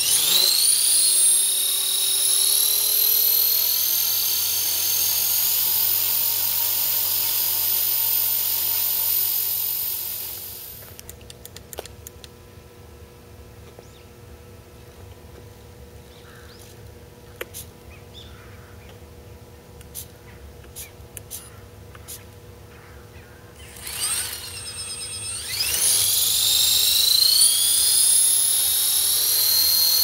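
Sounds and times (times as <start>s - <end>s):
rc helicopter motor whine: 0.0s - 11.0s, 23.5s - 30.0s.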